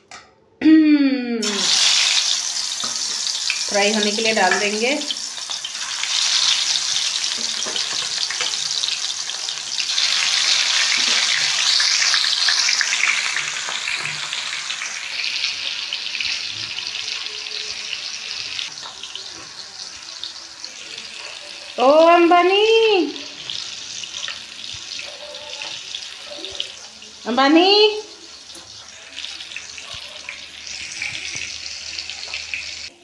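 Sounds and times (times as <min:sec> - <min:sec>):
fish deep-frying in oil: 0:01.4 - 0:33.0.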